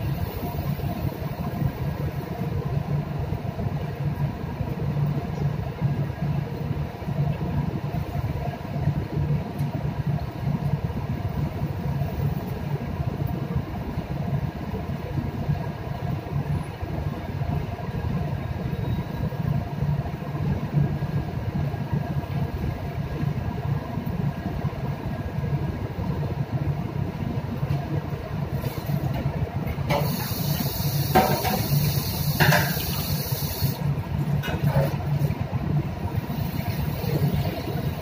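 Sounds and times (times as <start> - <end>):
ship machinery drone: 0.0 - 38.0
hiss: 28.5 - 29.1, 29.9 - 33.9, 36.2 - 38.0.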